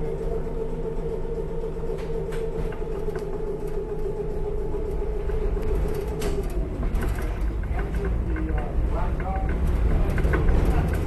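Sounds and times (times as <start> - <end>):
streetcar whine and rumble: 0.0 - 11.0
sharp track clicks: 4.8 - 11.0.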